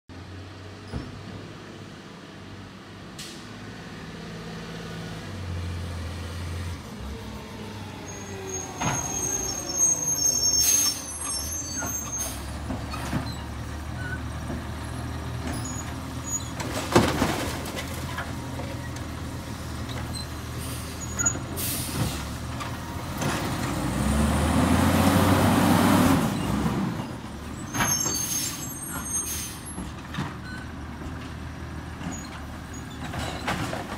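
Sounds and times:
garbage truck diesel engine revving: 3.6s - 27.6s
air brake hisses: 20.6s - 22.3s, 28.2s - 29.6s.

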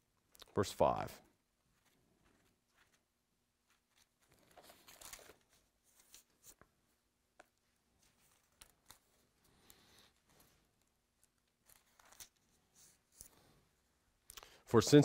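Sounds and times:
pages rustling: 1.7s - 13.6s.

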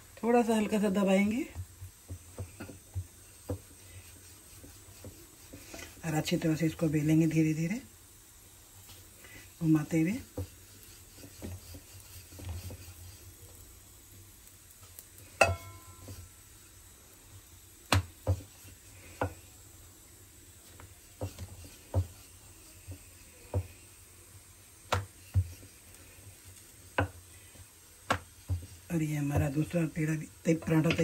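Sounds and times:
rolling pin rolling dough: 0.2s - 7.9s, 8.8s - 31.0s
rolling pin knocking on board: 17.9s - 18.5s, 21.2s - 22.2s, 24.9s - 25.5s.

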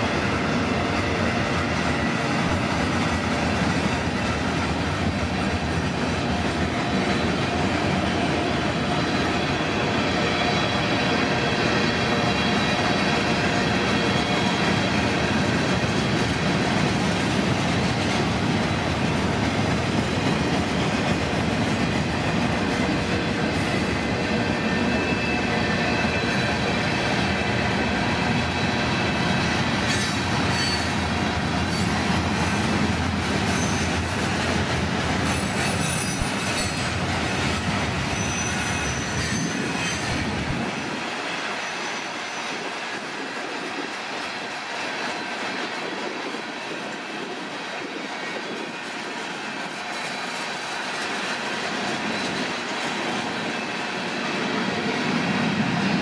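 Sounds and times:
freight train wheels rumbling on rails: 0.0s - 56.0s
rail joint clicks: 29.7s - 53.6s
high wheel squeals: 38.1s - 42.6s.

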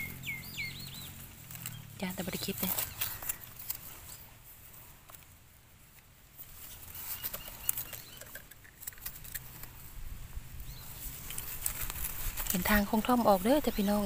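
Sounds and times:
hands handling mushrooms: 1.0s - 14.0s
knife scraping soil: 1.4s - 5.3s, 6.4s - 10.0s.

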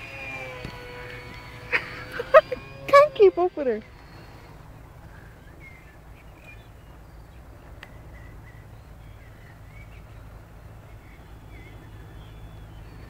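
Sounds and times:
faint bird chirps: 3.5s - 13.0s.

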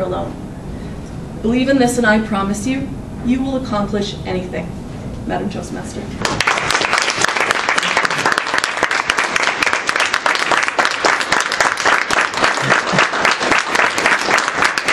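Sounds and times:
people applauding: 6.2s - 14.9s.

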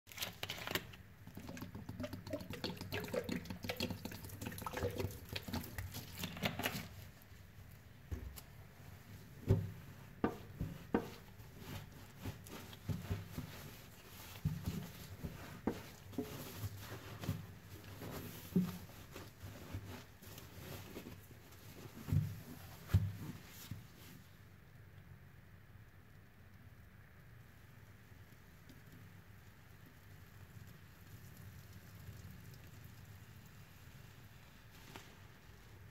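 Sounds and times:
water crackling and dripping: 0.1s - 7.9s
wet sponges squelching: 0.1s - 24.1s.

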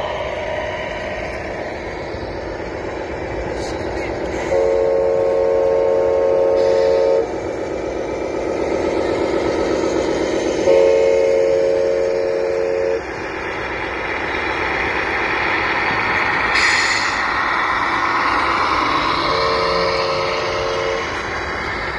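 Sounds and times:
air horn blasts: 4.5s - 7.3s, 10.6s - 13.0s, 19.3s - 21.1s.

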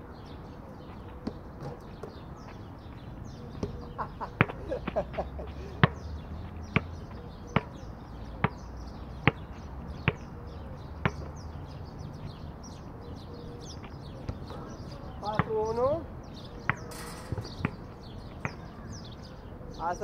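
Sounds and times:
birds chirping: 0.0s - 20.0s
basketball bouncing: 7.5s - 7.8s, 9.2s - 10.3s, 11.0s - 11.3s, 15.2s - 15.6s, 16.6s - 18.7s.

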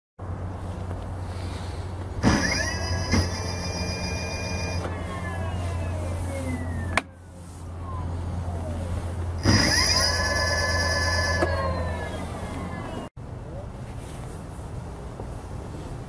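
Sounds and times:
electric hub motor whining: 2.1s - 13.1s.

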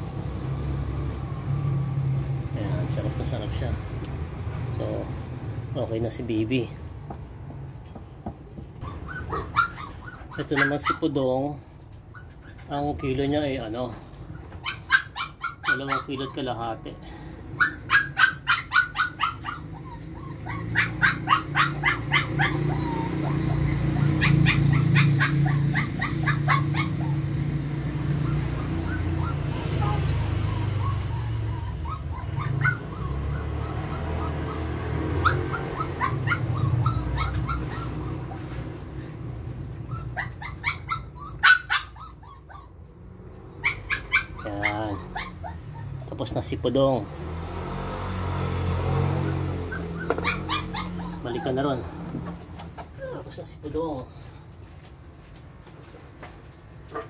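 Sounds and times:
puppies whimpering and yipping: 8.8s - 47.1s, 48.5s - 54.3s.

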